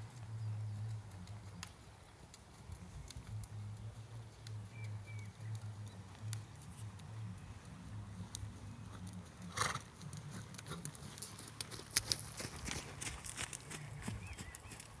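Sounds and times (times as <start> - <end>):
sharp hoof clicks: 0.0 - 15.0
hoofbeats on sand: 8.9 - 15.0.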